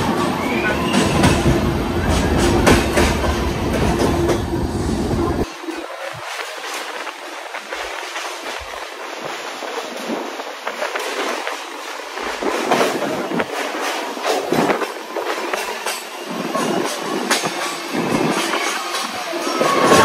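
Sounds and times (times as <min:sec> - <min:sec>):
train rushing on rails: 0:00.0 - 0:20.0
train wheel clicks: 0:06.3 - 0:20.0.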